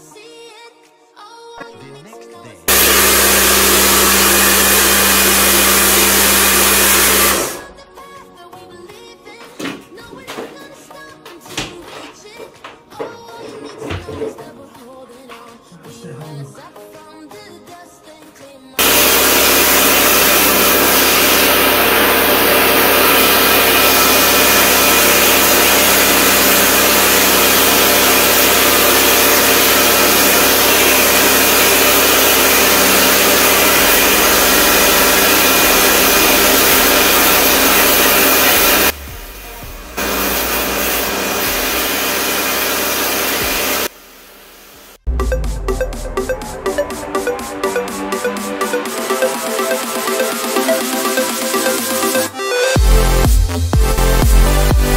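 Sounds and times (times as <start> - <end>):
pressure washer motor whining: 2.7 - 7.7, 18.8 - 45.0
water jet hissing on tiles: 40.0 - 45.0.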